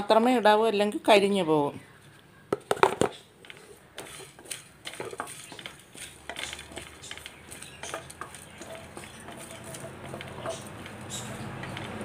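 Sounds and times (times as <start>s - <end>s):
spices rattling against metal: 2.8s - 12.0s
wooden spatula scraping metal pan: 3.4s - 12.0s.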